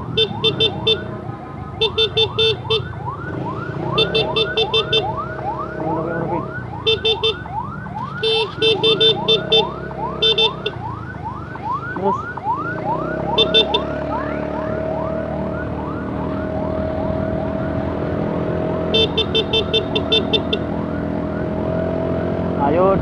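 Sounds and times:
ambulance siren yelp: 0.0 - 23.0
motorcycle and traffic noise: 0.0 - 23.0
rapid horn beeps: 4.0 - 5.1, 6.8 - 7.5, 8.2 - 10.8, 13.3 - 14.0, 18.9 - 20.6.

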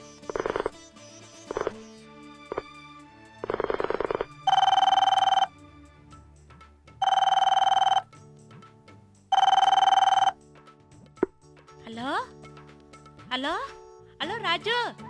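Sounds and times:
telephone ringing: 0.3 - 0.7, 3.4 - 5.5, 7.0 - 8.1, 9.3 - 10.4.

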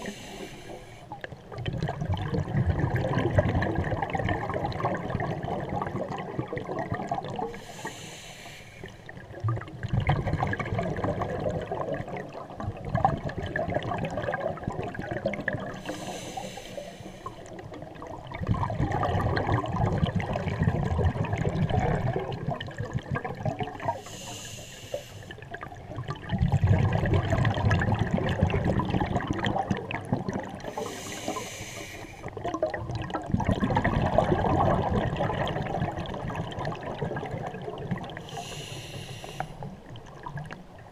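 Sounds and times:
diver inhaling through regulator: 0.0 - 1.1, 7.5 - 9.0, 15.8 - 17.5, 23.9 - 25.4, 30.7 - 32.3, 38.2 - 39.8
exhaled bubbles gurgling: 0.0 - 8.2, 8.8 - 40.9.

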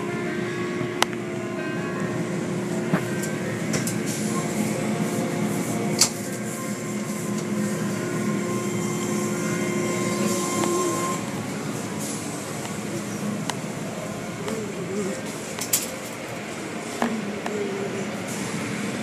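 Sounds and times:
machinery humming: 0.0 - 19.0.

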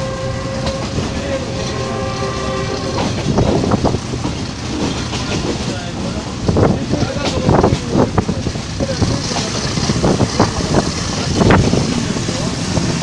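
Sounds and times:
train carriages rolling: 0.0 - 13.0.

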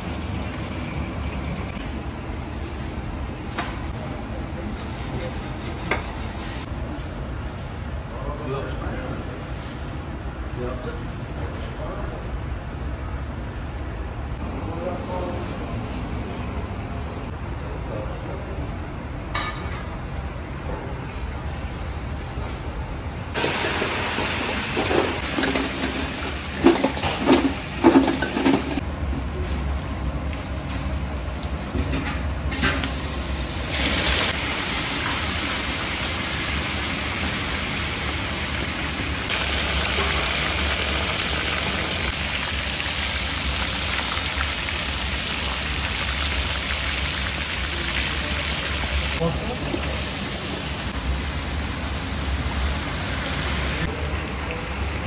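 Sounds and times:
meat sizzling in hot oil: 32.8 - 49.2.

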